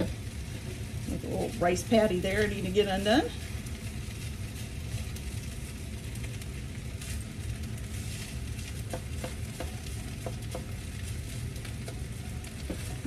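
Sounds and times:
low steady rumble: 0.0s - 13.0s
rice sizzling in a wok: 0.0s - 13.0s
spatula scraping and tapping pan: 8.2s - 13.0s.

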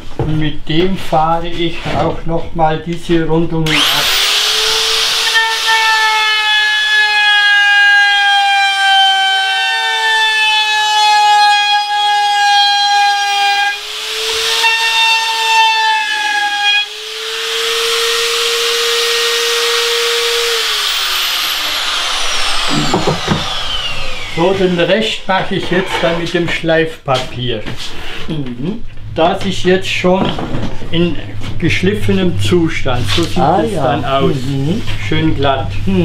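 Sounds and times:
router whining: 3.6s - 26.2s.

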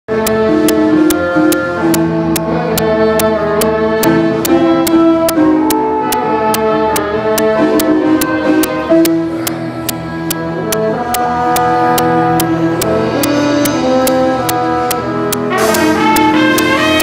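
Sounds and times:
sharp percussive hits: 12.0s - 17.0s.

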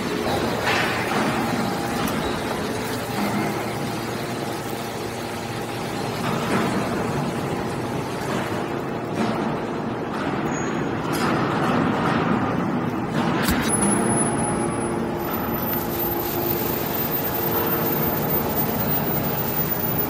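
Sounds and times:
baler mechanical drone: 11.9s - 20.0s
steady whine: 13.5s - 20.0s.

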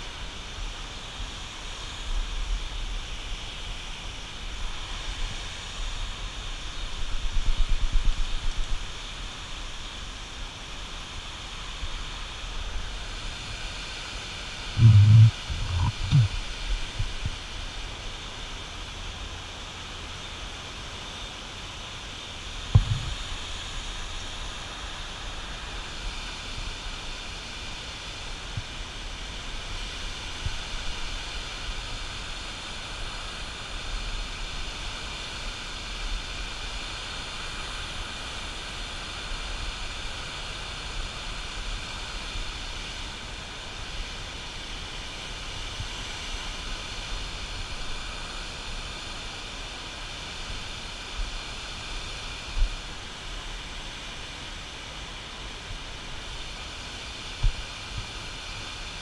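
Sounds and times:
white water rushing: 0.0s - 59.0s
single brief knock: 22.8s - 23.1s.

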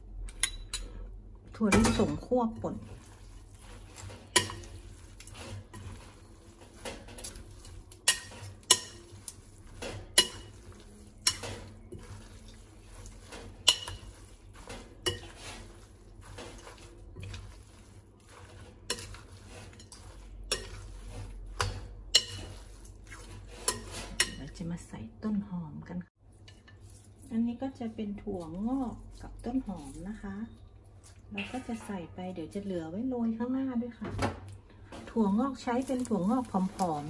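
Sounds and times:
metal spatula clinking on glass bowl: 6.8s - 12.6s, 13.4s - 14.2s, 21.6s - 22.6s.

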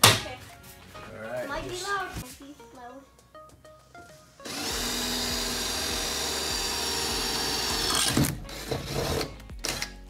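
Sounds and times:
cordless drill whining: 4.5s - 9.3s.

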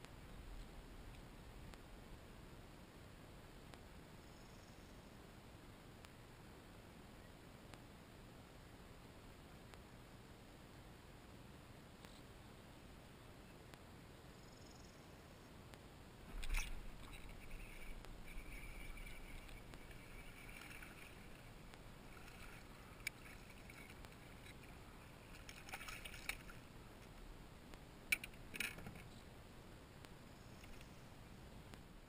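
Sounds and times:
light hiss: 0.0s - 32.0s
water rush: 16.3s - 26.7s.

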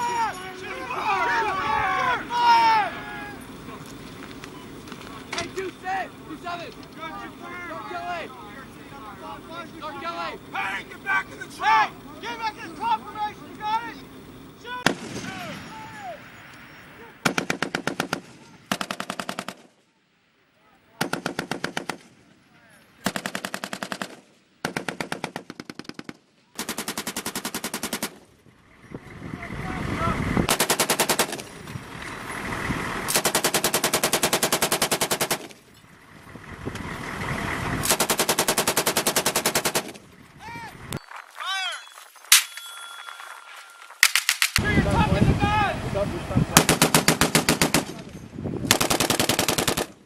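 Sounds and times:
machine gun automatic bursts: 17.2s - 19.7s, 21.0s - 22.2s, 23.0s - 28.3s, 30.5s - 31.6s, 33.1s - 35.7s, 37.8s - 40.0s, 46.6s - 48.0s, 48.7s - 50.0s.

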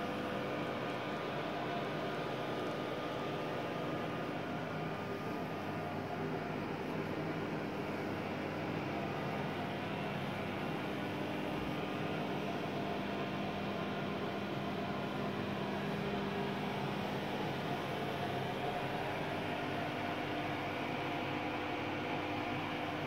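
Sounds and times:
film projector humming and whirring: 0.0s - 23.0s.

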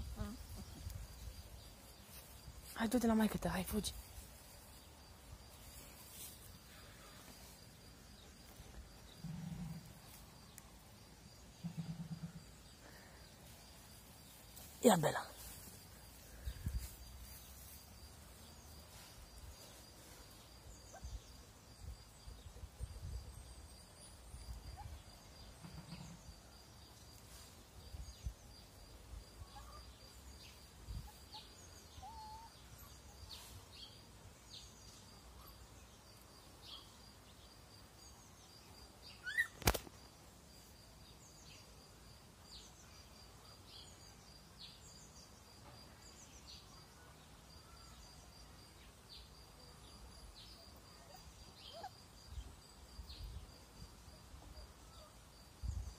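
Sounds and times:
sharp loud snap: 39.6s - 40.0s.

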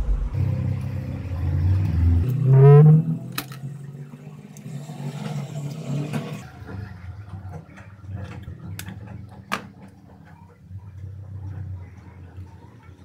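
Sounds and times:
low hum: 0.0s - 4.6s.

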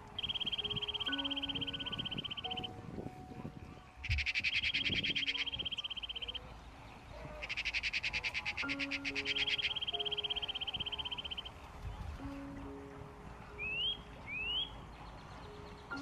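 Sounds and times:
high-pitched trilling calls: 0.0s - 2.8s, 3.8s - 6.5s, 7.2s - 11.6s.

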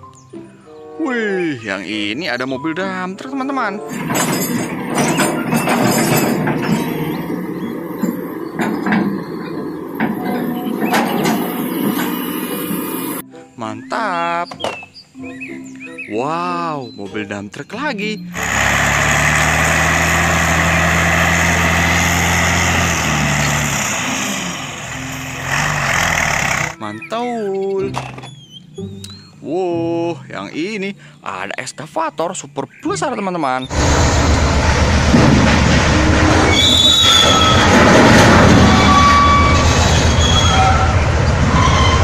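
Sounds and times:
diesel truck engine running: 3.9s - 13.2s, 18.3s - 26.8s, 33.7s - 40.2s
high machinery squealing: 3.9s - 13.2s, 18.2s - 28.7s, 36.2s - 42.0s
mining shovel machinery drone: 3.9s - 13.2s, 18.4s - 26.8s, 33.7s - 40.7s.

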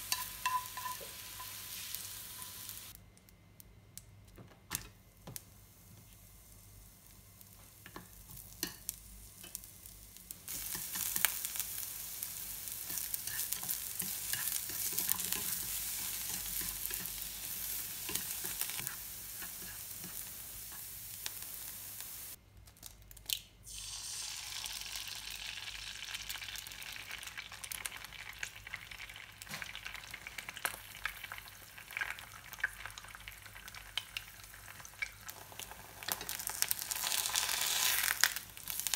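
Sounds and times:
utensil tapping pan: 0.0s - 1.6s
vegetables sizzling in oil: 0.0s - 3.0s, 5.6s - 22.4s, 23.7s - 38.9s.

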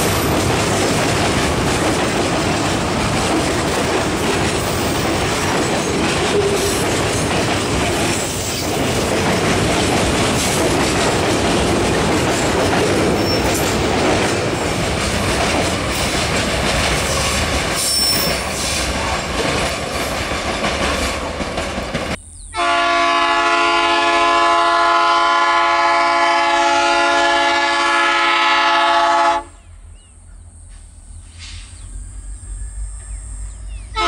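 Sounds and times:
train wheels clattering: 0.0s - 22.2s
locomotive air horn blast: 22.5s - 29.6s.

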